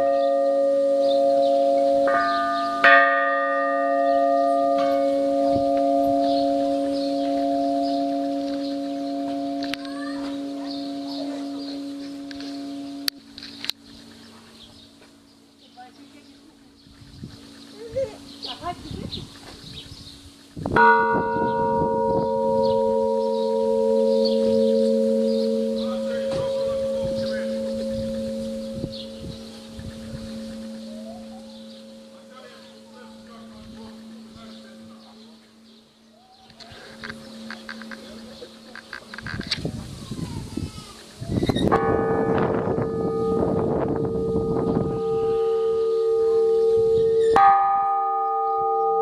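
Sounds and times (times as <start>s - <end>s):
church bell strikes: 0.0s - 13.5s, 20.8s - 35.8s, 36.9s - 39.6s, 41.6s - 49.0s
long ringing bell tone: 0.0s - 13.5s, 20.8s - 35.9s, 41.6s - 49.0s.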